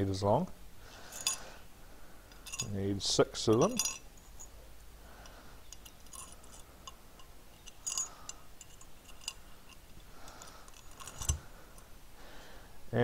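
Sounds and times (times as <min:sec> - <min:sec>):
metal screws clinking: 0:01.0 - 0:01.6, 0:02.3 - 0:11.9.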